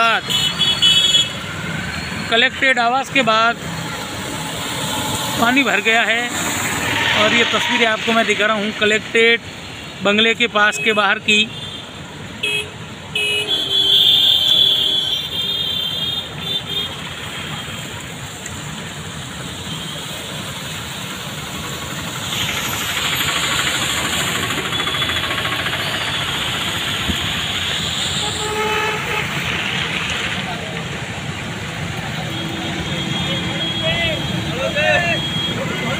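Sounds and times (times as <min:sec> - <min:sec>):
motorcycle engines: 0:00.0 - 0:35.9
vehicle horns honking: 0:00.1 - 0:01.4, 0:06.4 - 0:08.2, 0:10.6 - 0:17.9, 0:26.0 - 0:29.5, 0:32.1 - 0:35.9
tyres splashing through water: 0:01.3 - 0:10.0, 0:16.9 - 0:35.9.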